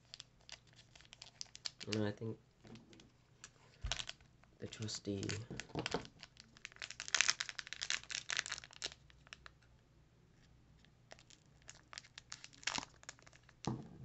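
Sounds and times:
foil wrapper crinkling: 0.0s - 2.1s, 2.7s - 9.5s, 11.1s - 13.7s.

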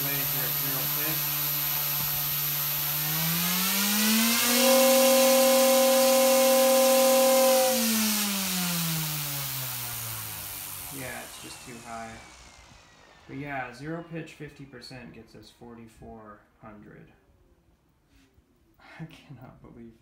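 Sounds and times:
model helicopter rotor whine: 0.0s - 15.3s.

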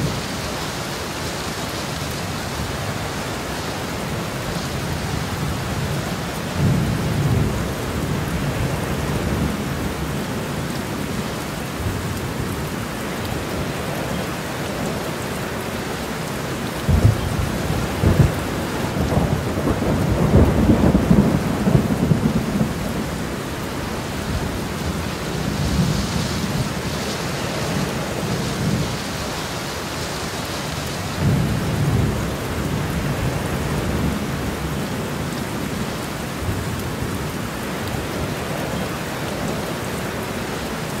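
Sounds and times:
steady rain: 0.0s - 41.0s
rolling thunder: 16.8s - 27.0s.

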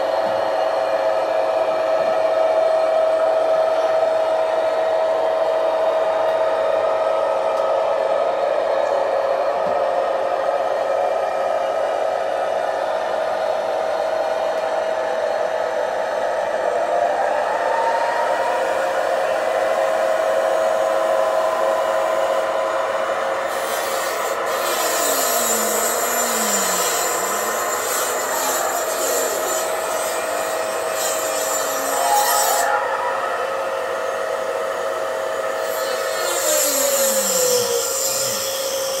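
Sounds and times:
model train mechanical whine: 0.0s - 39.0s
gliding tones: 31.6s - 35.4s.

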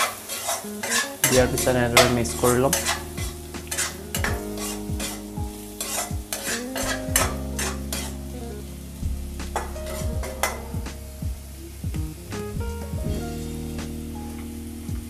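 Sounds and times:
spatula scraping a wok: 0.0s - 8.2s
food sizzling: 0.0s - 15.0s.

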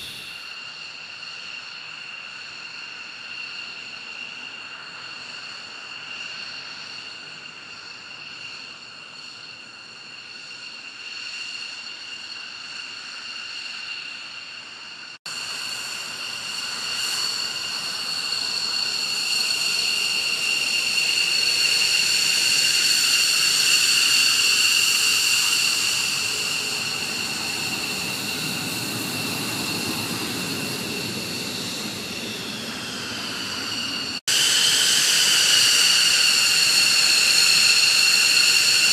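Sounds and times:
jet engines whining: 0.0s - 1.2s, 4.4s - 38.9s.

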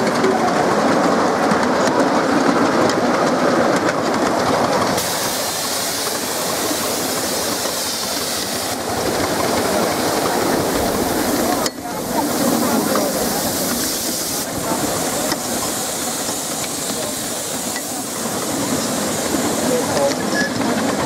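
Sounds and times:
train wheels running over rails: 0.0s - 21.0s
steam hiss: 4.5s - 21.0s.

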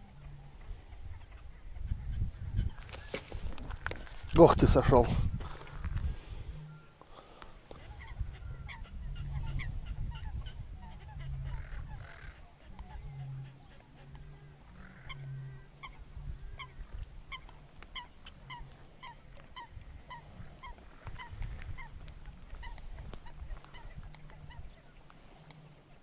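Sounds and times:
bird calling: 5.5s - 26.0s.

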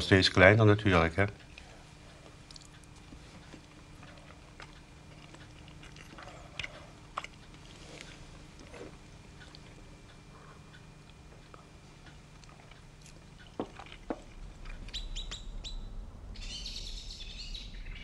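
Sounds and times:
faint steady hum: 0.0s - 18.0s
person chewing: 1.4s - 15.1s.

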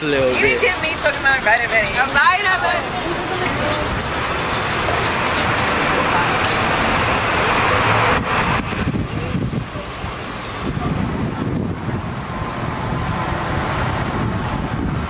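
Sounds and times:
voices: 0.0s - 12.0s
street traffic noise: 0.0s - 15.0s.

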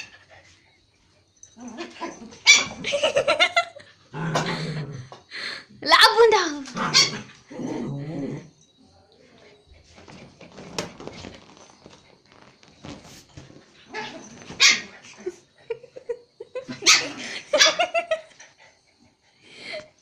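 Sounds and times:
small dogs barking: 1.6s - 3.6s, 6.7s - 7.4s, 13.9s - 15.1s, 16.7s - 18.2s.

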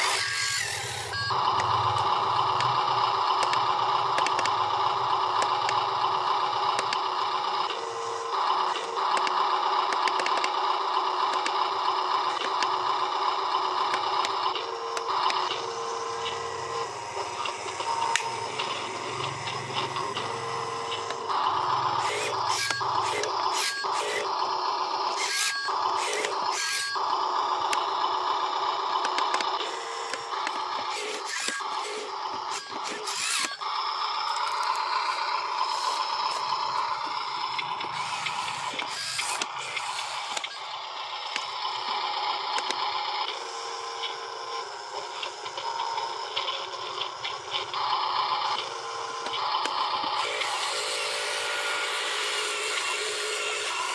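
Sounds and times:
small electric motors whirring: 0.0s - 53.9s.

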